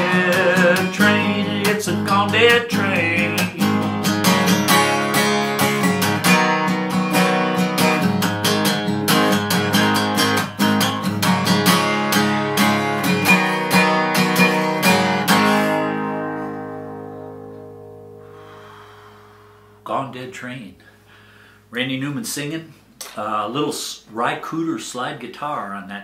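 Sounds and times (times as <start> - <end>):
acoustic guitar strummed: 0.0 - 20.0.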